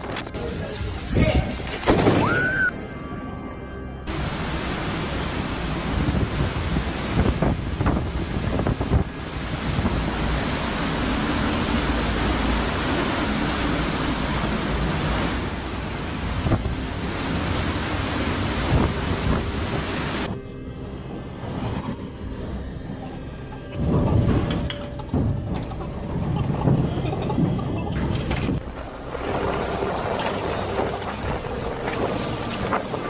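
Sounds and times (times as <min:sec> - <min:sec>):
driving rain: 0:04.1 - 0:20.3, 0:28.1 - 0:33.0
hurricane-force wind: 0:04.1 - 0:20.3, 0:23.8 - 0:33.0.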